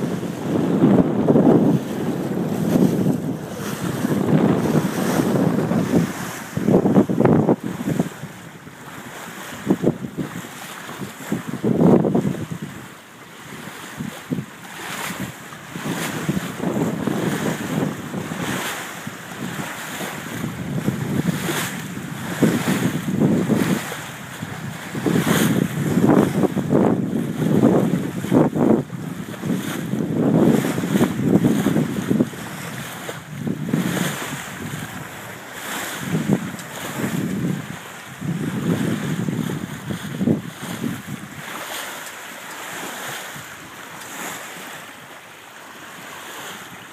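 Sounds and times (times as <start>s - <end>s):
wind buffeting microphone: 0.0s - 45.0s
water rushing along boat hull: 0.0s - 46.9s.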